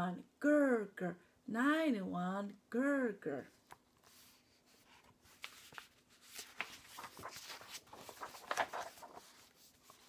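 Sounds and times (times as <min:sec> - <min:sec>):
paper pages rustling: 0:03.6 - 0:10.0.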